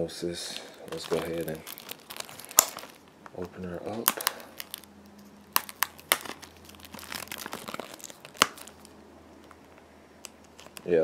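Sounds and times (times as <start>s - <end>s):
plastic wrap crinkling: 0.5s - 11.0s
knife slitting plastic wrap: 0.9s - 3.0s, 3.9s - 4.9s.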